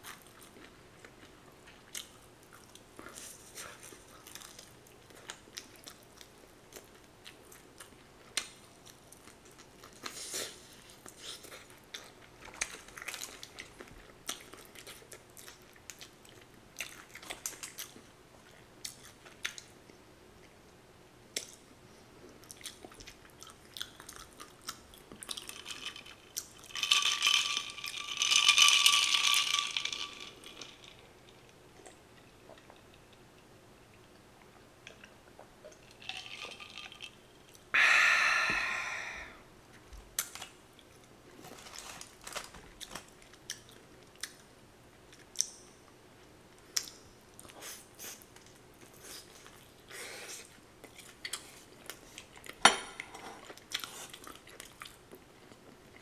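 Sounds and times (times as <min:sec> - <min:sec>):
chewing crispy fried chicken: 0:00.0 - 0:20.6, 0:22.3 - 0:27.4, 0:46.6 - 0:52.6, 0:53.2 - 0:56.0
aluminium foil crinkling: 0:25.2 - 0:31.1, 0:41.4 - 0:43.4.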